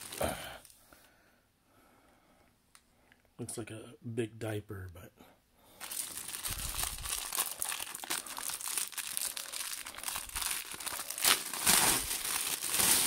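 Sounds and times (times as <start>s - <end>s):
plastic bag crinkling: 0.0s - 0.7s, 5.8s - 13.0s.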